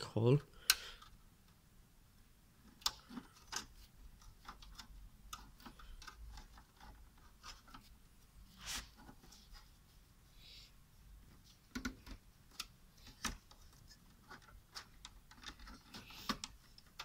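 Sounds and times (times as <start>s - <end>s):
fingers clicking on computer case: 2.7s - 7.9s, 11.7s - 17.0s
short scrape: 8.5s - 9.0s.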